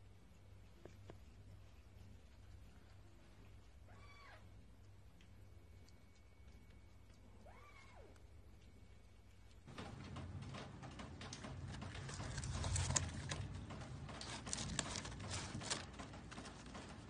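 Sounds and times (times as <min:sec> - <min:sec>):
paper carton rustling: 0:09.7 - 0:17.0.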